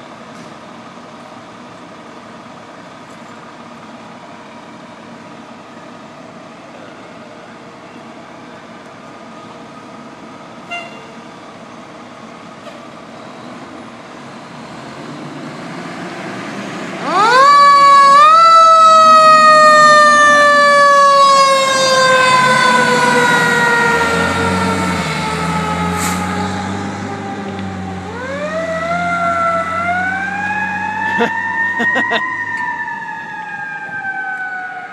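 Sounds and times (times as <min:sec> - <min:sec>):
fire engine rumbling: 0:00.0 - 0:34.9
siren wailing: 0:17.0 - 0:34.9.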